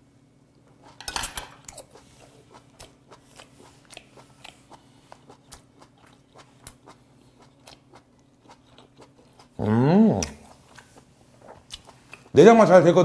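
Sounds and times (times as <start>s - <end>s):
chewing clicks: 2.5s - 9.5s, 10.2s - 12.3s.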